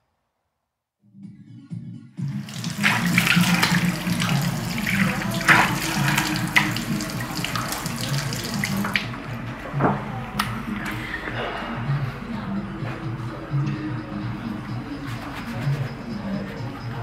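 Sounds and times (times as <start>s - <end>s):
tap water splashing over hands: 2.4s - 9.1s.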